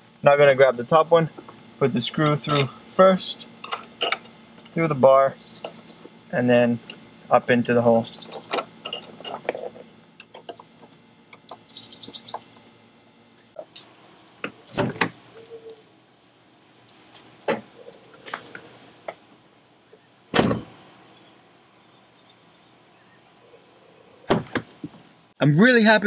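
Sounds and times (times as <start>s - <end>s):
car door shutting: 20.3s - 20.8s.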